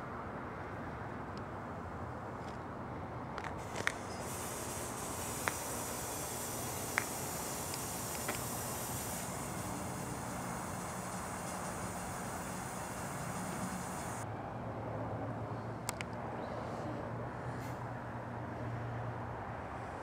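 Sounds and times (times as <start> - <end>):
spout sprayer hissing: 3.6 - 14.2.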